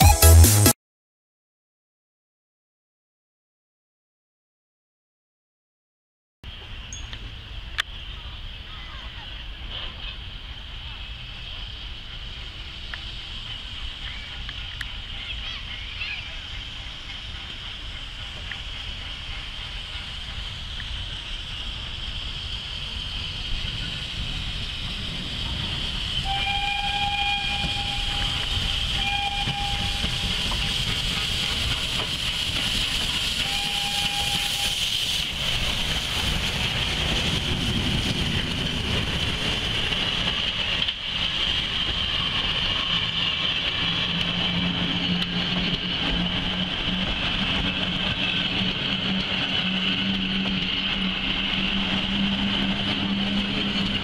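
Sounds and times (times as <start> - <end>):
passenger carriages rolling by: 6.5 - 54.0
rushing of steam: 6.5 - 54.0
steam locomotive whistle: 26.1 - 31.4, 33.1 - 35.0.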